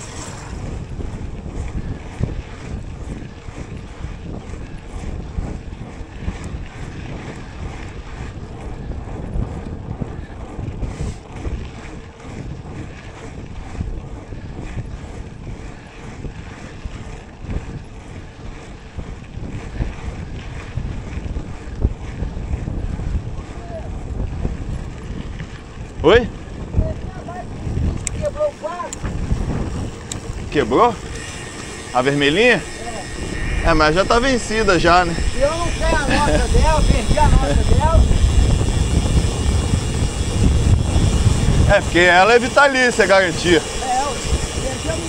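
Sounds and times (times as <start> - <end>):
bike rattling and knocking: 0.0 - 45.0
tyres rumbling on trail: 0.0 - 45.0
wind buffeting microphone: 0.0 - 45.0.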